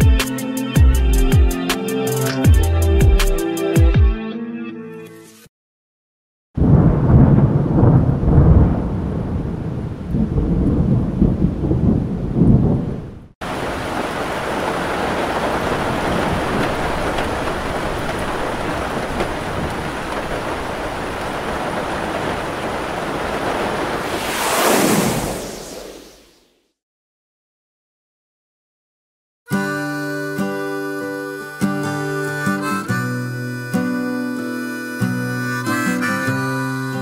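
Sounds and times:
heavy rain downpour: 6.6s - 25.4s
thunder rumbling: 6.6s - 26.2s.

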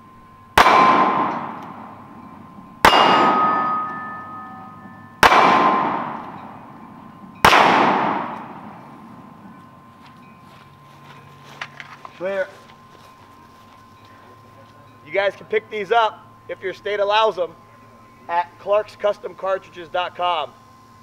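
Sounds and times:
pistol shots: 0.6s - 2.2s, 2.8s - 4.5s, 5.2s - 6.8s, 7.4s - 9.4s
steel plate clanging: 0.8s - 7.5s.

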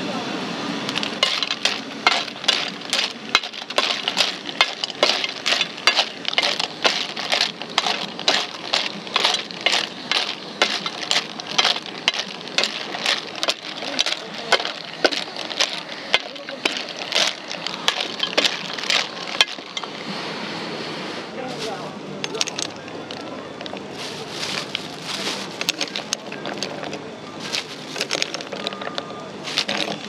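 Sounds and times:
shells clattering in metal pan: 0.9s - 20.0s
spatula scraping pan: 0.9s - 20.1s.

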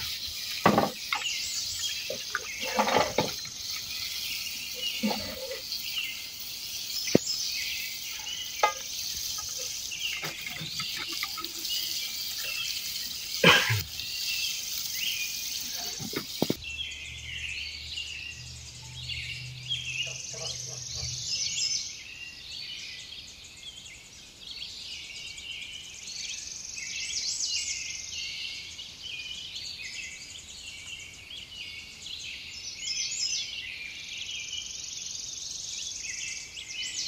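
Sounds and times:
insects hissing: 0.0s - 16.6s
birds chirping: 0.0s - 23.9s.

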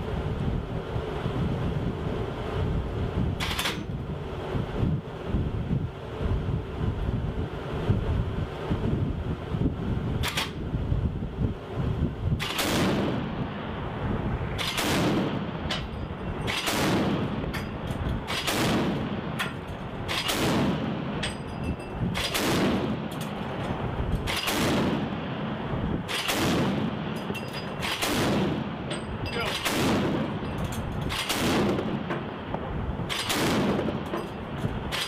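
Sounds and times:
deck guns firing with echo: 12.4s - 13.3s, 14.6s - 15.8s, 16.5s - 17.5s, 18.2s - 21.2s, 22.2s - 23.2s, 24.2s - 25.3s, 26.1s - 27.2s, 27.8s - 28.9s, 29.5s - 30.4s, 31.1s - 32.2s, 33.1s - 34.1s.

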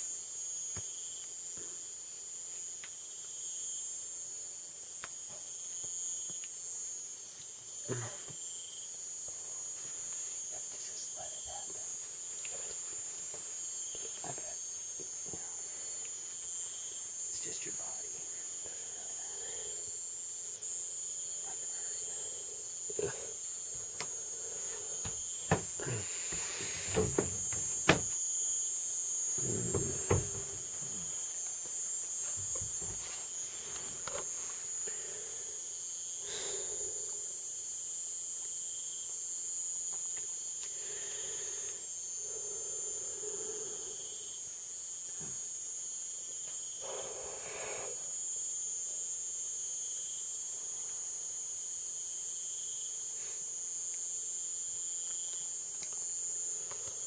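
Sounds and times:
night insects chirping: 0.0s - 57.0s
sharp knocks: 25.0s - 28.2s, 29.7s - 30.6s.

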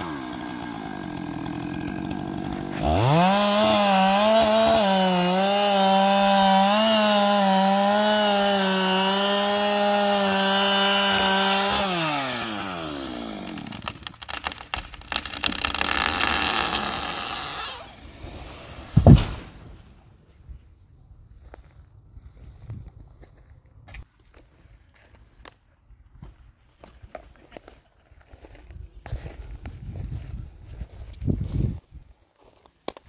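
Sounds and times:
chainsaw cutting wood: 0.0s - 19.6s
wood cracking: 9.0s - 18.0s
tree falling rushing noise: 18.0s - 20.0s
heavy thud of trunk hitting ground: 19.0s - 19.8s.

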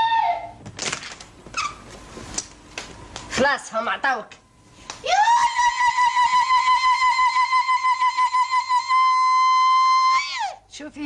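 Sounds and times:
woman ululating: 5.0s - 10.6s.

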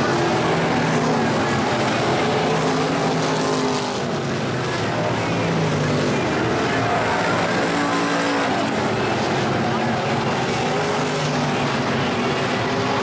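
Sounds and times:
race car engines running hard: 0.0s - 13.0s.

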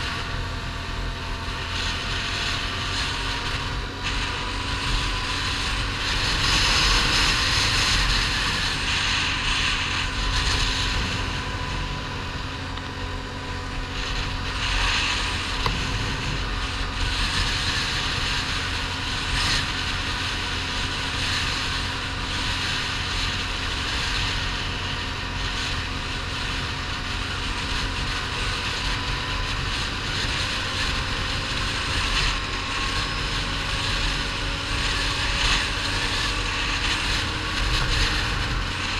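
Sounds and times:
atv engine running: 0.0s - 38.9s
wind on microphone: 0.0s - 38.9s.

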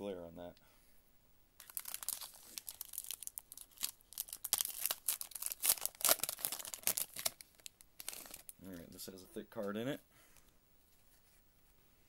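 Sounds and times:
foil wrapper tearing and crinkling: 1.6s - 8.6s.

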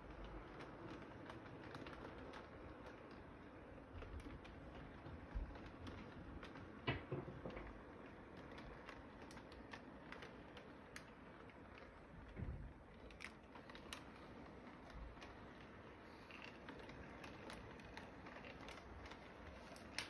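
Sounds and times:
toy train wheels clicking on rails: 0.0s - 6.9s.

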